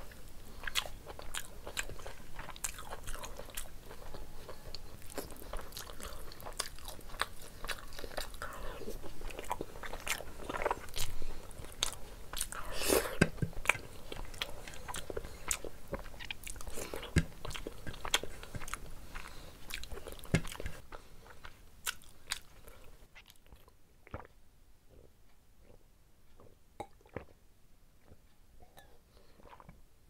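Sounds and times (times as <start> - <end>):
wet chewing and lip smacks: 0.5 - 24.4.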